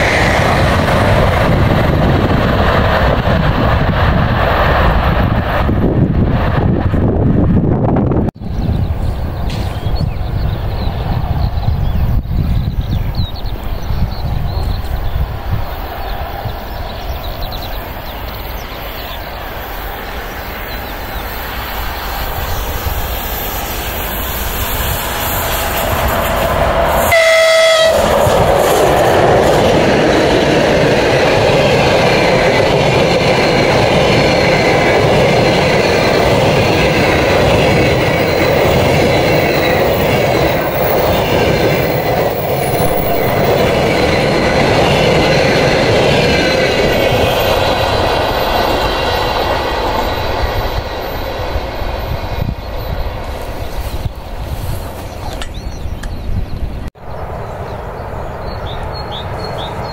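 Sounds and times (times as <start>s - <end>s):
train wheels rolling on rails: 0.0s - 59.9s
train horn blast: 27.0s - 28.2s.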